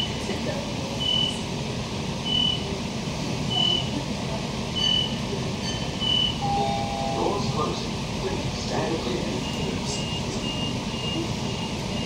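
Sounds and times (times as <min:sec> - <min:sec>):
low hum of train equipment: 0:00.0 - 0:12.0
short high door beeps: 0:01.0 - 0:01.4, 0:02.3 - 0:02.7, 0:03.5 - 0:03.9, 0:04.8 - 0:07.3, 0:09.4 - 0:12.0.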